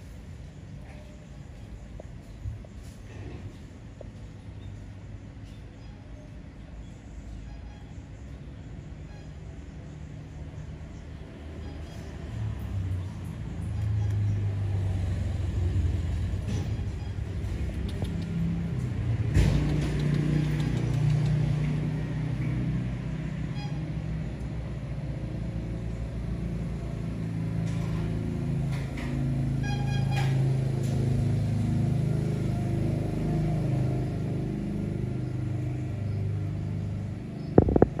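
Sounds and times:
engine rumbling: 0:00.0 - 0:38.0
sharp click: 0:19.3 - 0:21.6.

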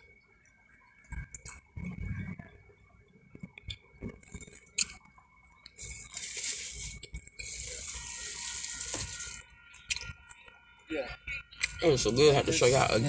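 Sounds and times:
plastic scraping rustle: 0:05.8 - 0:09.5.

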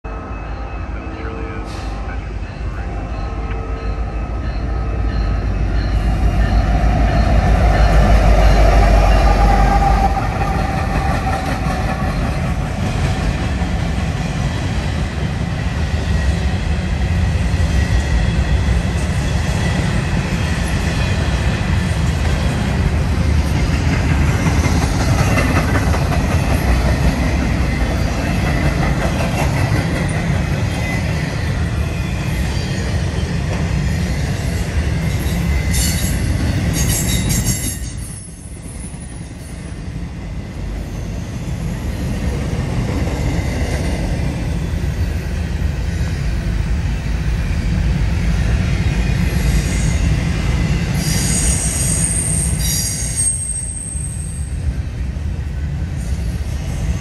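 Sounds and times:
diesel locomotive engine: 0:00.0 - 0:57.0
train wheels clattering on rails: 0:05.0 - 0:39.8.

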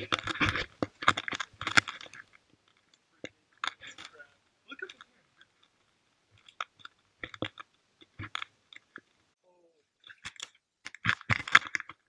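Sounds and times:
camera knocking and rubbing: 0:00.0 - 0:02.3, 0:10.9 - 0:12.0.

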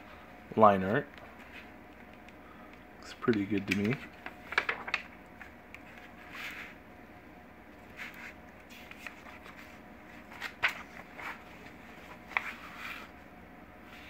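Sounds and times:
paper pages rustling: 0:03.2 - 0:06.8, 0:07.8 - 0:13.2.

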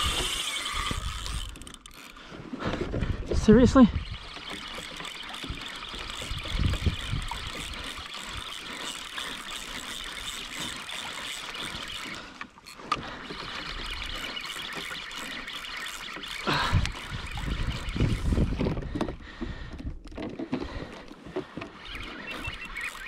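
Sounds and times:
wind bumps on microphone: 0:16.8 - 0:19.1.

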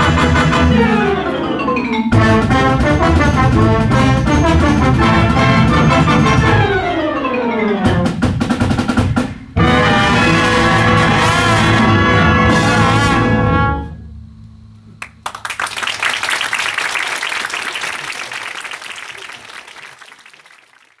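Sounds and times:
concert band holding chord: 0:00.0 - 0:08.1, 0:09.3 - 0:14.2
audience applauding: 0:15.0 - 0:21.0.

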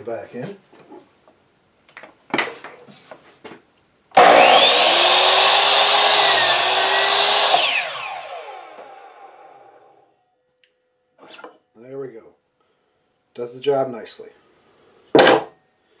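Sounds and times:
saw motor winding down: 0:04.2 - 0:10.0
miter saw whining and cutting: 0:04.2 - 0:10.1.

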